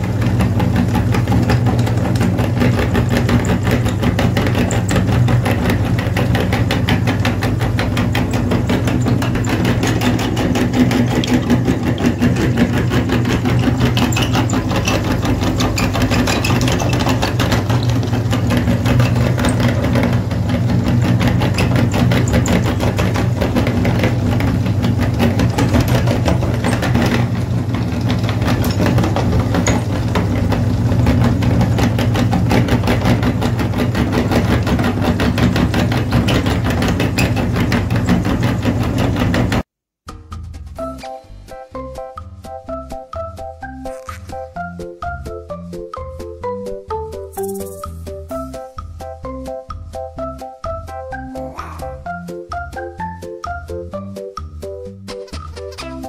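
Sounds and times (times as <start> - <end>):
meat grinder motor humming: 0.0 - 39.6.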